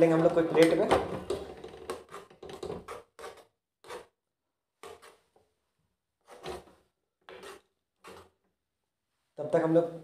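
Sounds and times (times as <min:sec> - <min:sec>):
metal spoon scraping saucepan: 0:07.3 - 0:08.3.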